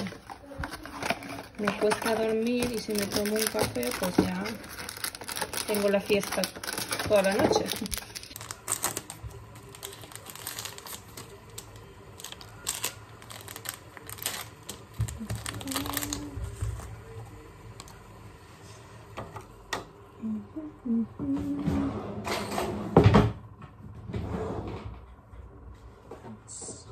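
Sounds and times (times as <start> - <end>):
paper crinkling: 0.0 - 18.0.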